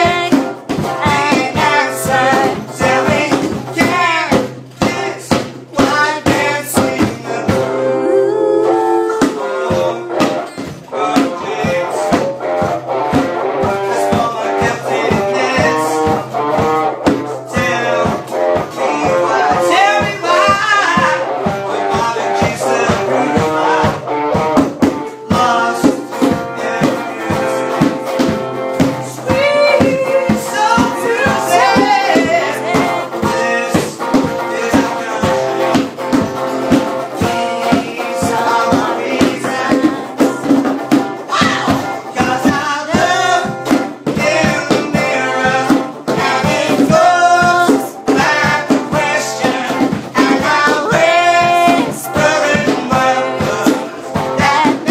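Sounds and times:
man singing: 0:00.0 - 0:24.4, 0:25.0 - 0:36.1, 0:36.8 - 0:40.6, 0:41.2 - 0:54.9
acoustic guitar strumming: 0:00.0 - 0:54.9
drum beat: 0:00.0 - 0:54.9.

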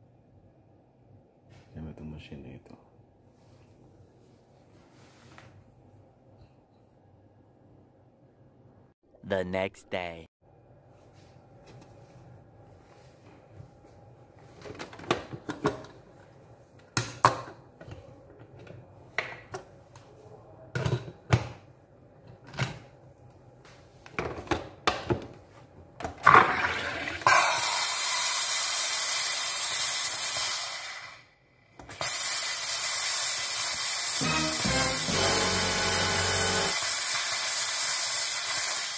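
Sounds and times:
machine injecting gas hiss: 0:31.9 - 0:38.9.

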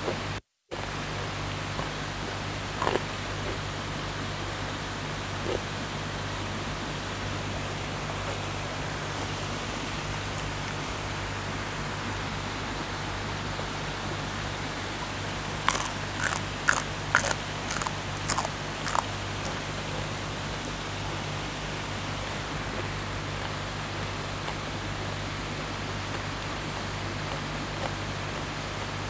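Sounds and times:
person chewing crunchy greens: 0:02.7 - 0:03.6, 0:05.4 - 0:05.7, 0:15.5 - 0:21.2, 0:26.1 - 0:29.0.

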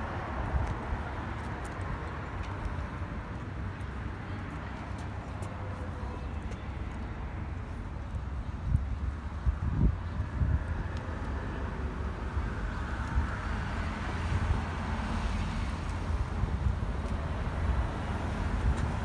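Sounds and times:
street traffic: 0:00.0 - 0:19.0
wind rumble on microphone: 0:07.6 - 0:19.0.

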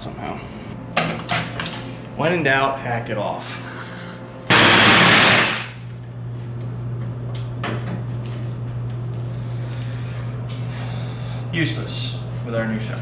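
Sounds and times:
power tool cutting steel: 0:04.5 - 0:05.7.

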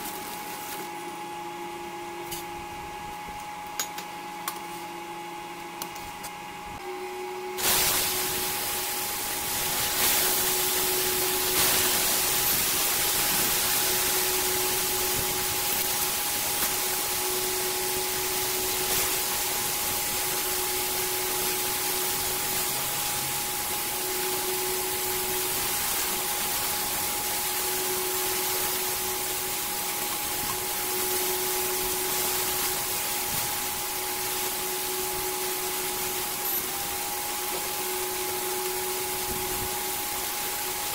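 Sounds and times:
electric hum and whine: 0:00.0 - 0:40.9
bacon sizzling in frying pan: 0:07.6 - 0:34.7.

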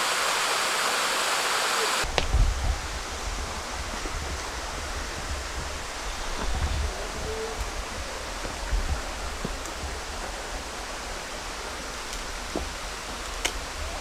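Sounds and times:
stream rushing over rocks: 0:00.0 - 0:14.0
wind rumble on microphone: 0:02.0 - 0:14.0.

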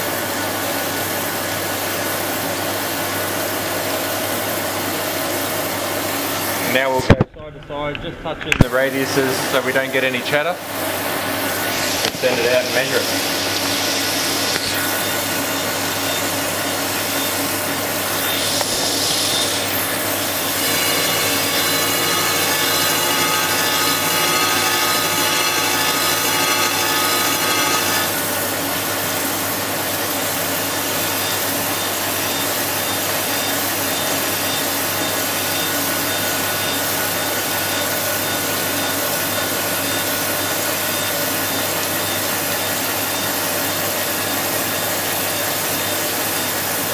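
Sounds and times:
grinding wheel hissing: 0:11.5 - 0:28.4.

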